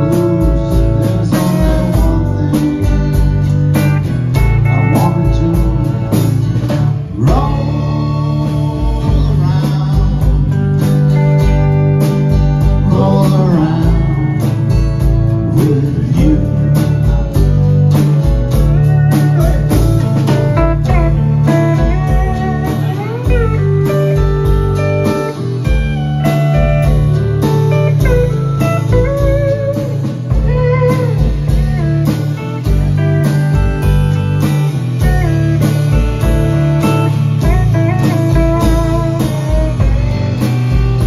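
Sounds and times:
drum kit beat: 0:00.0 - 0:41.0
electric bass: 0:00.0 - 0:41.0
strummed acoustic guitar: 0:00.0 - 0:41.0
pedal steel guitar sliding notes: 0:17.6 - 0:41.0.

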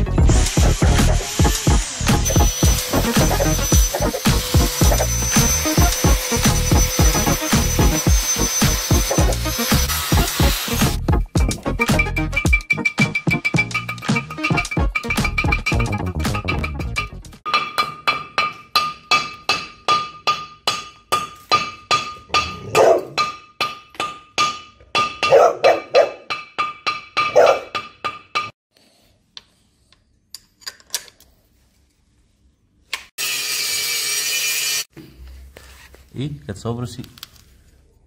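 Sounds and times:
angle grinder running: 0:00.2 - 0:11.0, 0:33.2 - 0:34.9
hammer striking metal disc: 0:12.0 - 0:28.5
dog barking: 0:22.7 - 0:23.2, 0:25.3 - 0:26.3, 0:27.3 - 0:27.7.

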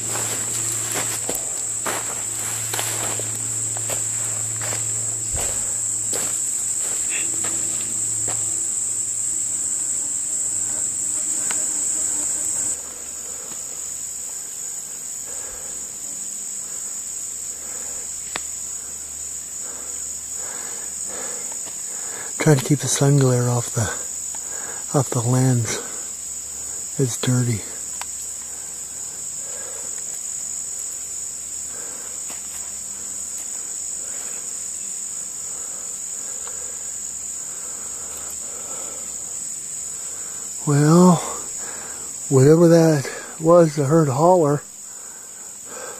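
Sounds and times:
footsteps on dry leaves and gravel: 0:00.0 - 0:09.1
insect chorus drone: 0:00.0 - 0:45.9.

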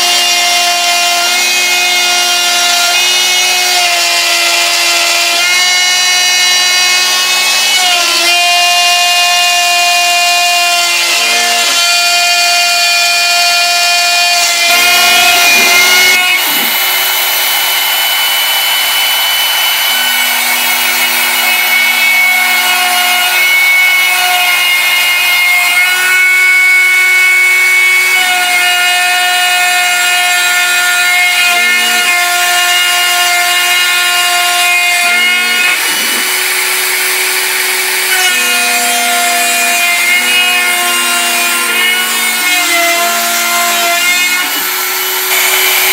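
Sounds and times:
router motor whine cutting: 0:00.0 - 0:45.9.

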